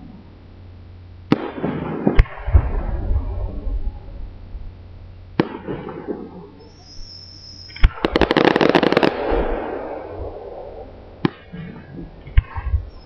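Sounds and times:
rumble: 0.0 - 13.0
firework bang: 1.3 - 3.6, 5.4 - 13.0
firework whistle: 5.4 - 12.0, 12.7 - 13.0
rapid crackling pops: 7.7 - 10.0.

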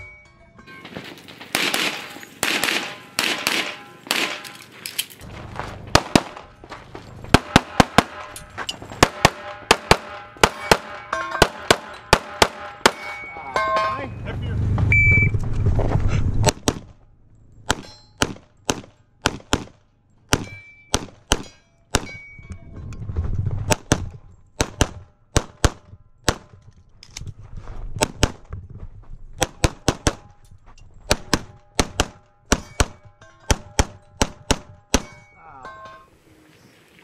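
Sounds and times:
rapid pistol shots: 1.5 - 4.5, 9.0 - 13.1, 17.7 - 22.1, 24.6 - 26.5, 31.1 - 35.1.

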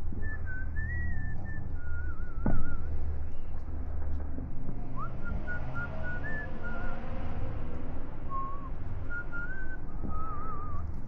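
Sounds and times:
low background rumble: 0.0 - 11.0
person whistling a tune: 0.2 - 2.9, 5.0 - 7.0, 8.3 - 10.9.

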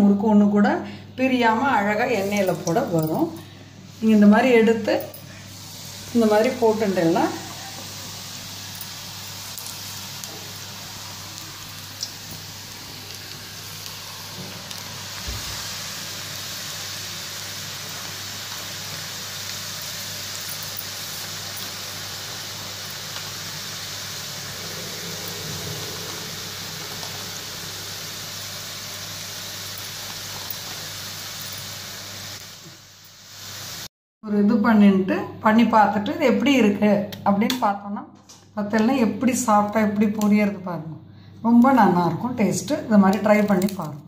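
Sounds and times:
oil sizzling in a pan: 1.5 - 33.9.

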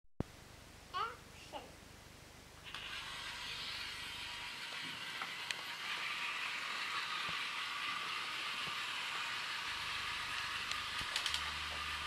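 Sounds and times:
toy trains whirring on track: 2.6 - 12.0.

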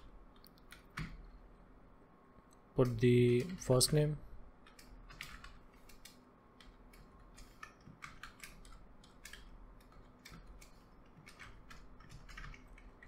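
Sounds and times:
keyboard keystrokes: 0.4 - 1.2, 4.6 - 13.0.

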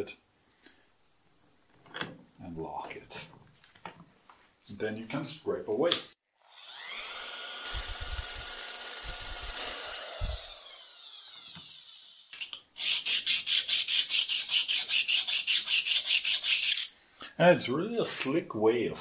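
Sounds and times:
power tool humming: 6.5 - 12.3
scraper rasping on steel: 12.8 - 16.9.

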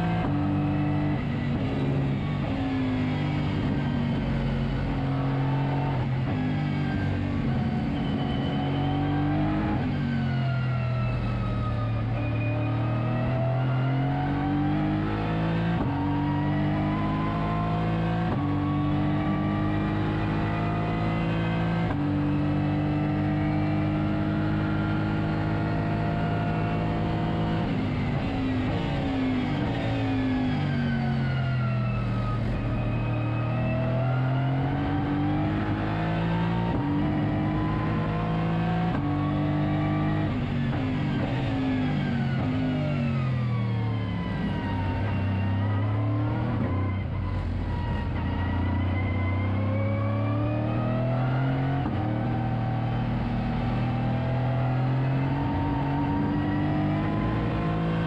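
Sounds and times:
race car engine revving: 0.0 - 10.7, 11.9 - 58.0.

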